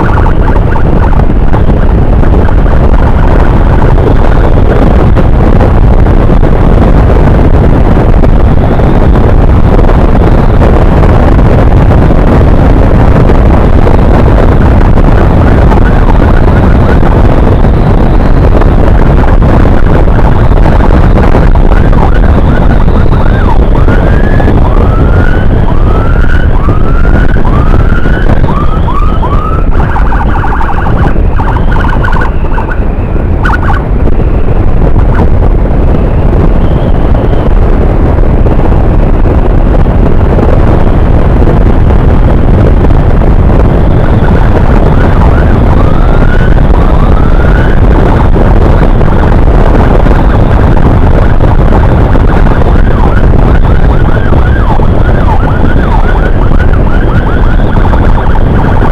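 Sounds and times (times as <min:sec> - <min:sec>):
electronic siren yelping: 0:00.0 - 0:05.2, 0:21.5 - 0:34.5, 0:43.9 - 0:49.0, 0:52.2 - 0:58.9
wind rush: 0:00.0 - 0:58.9.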